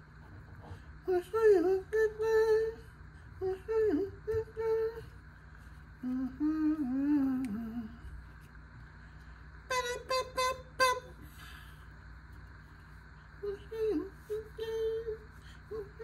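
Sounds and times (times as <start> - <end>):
man humming a tune: 6.0 - 8.0.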